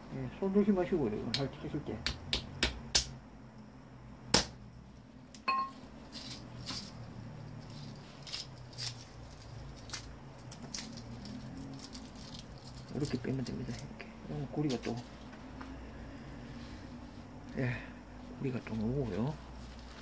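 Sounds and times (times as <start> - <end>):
metallic ring: 5.4 - 5.8.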